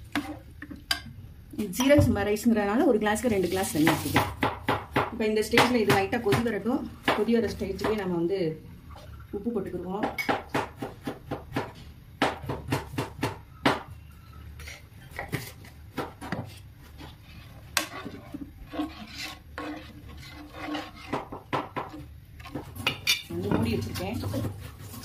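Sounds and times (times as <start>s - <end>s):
ladle scraping metal pot: 14.6s - 25.0s.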